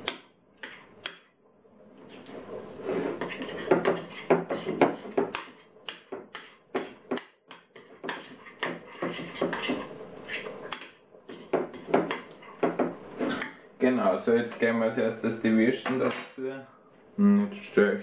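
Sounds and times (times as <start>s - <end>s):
spoon stirring thick mixture: 0.0s - 1.4s, 2.0s - 13.8s.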